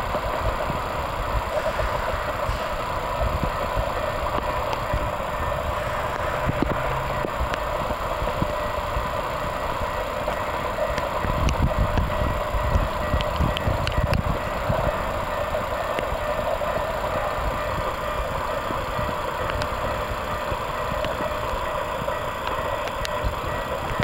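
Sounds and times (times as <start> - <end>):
wind rumbling on microphone: 0.0 - 9.6, 11.0 - 16.1.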